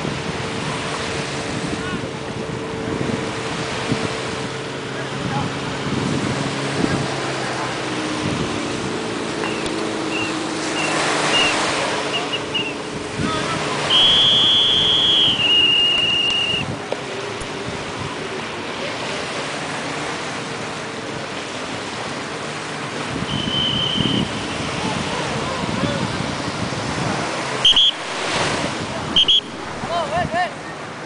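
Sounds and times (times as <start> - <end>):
wind buffeting microphone: 0.0 - 18.7, 19.5 - 31.0
surf washing ashore: 0.0 - 31.0
loud high-pitched tone: 13.8 - 16.6.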